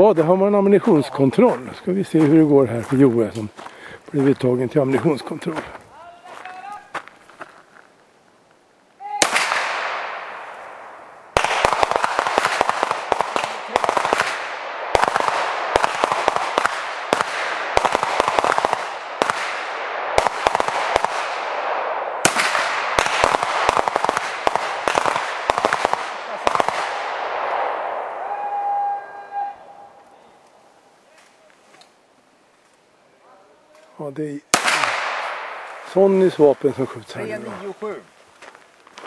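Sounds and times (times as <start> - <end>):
pistol gunshot cracks: 9.2 - 10.3, 11.4 - 27.6, 34.5 - 35.7.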